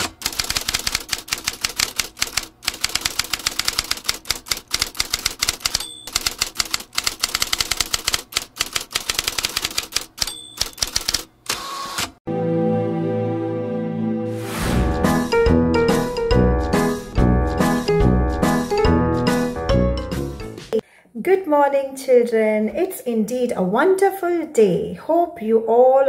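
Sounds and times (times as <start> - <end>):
typewriter keystroke clacks: 0.0 - 11.3
typewriter bell ding: 5.6 - 6.2, 10.2 - 11.2.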